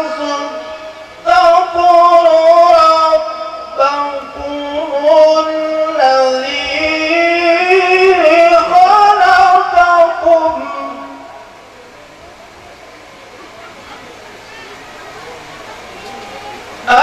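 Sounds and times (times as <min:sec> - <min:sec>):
man chanting recitation: 0:00.0 - 0:11.6.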